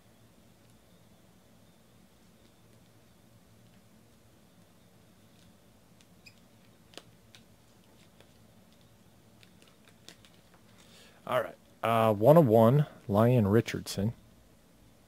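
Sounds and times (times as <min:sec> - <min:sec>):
low room hum: 0:00.0 - 0:15.0
faint clicks and ticks: 0:05.3 - 0:11.0.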